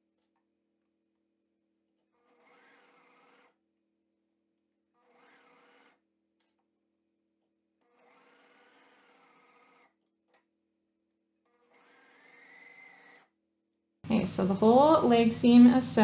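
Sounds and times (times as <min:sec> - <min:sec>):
serger machine stitching: 0:02.0 - 0:03.6, 0:04.9 - 0:06.6, 0:07.8 - 0:10.4, 0:11.4 - 0:13.3.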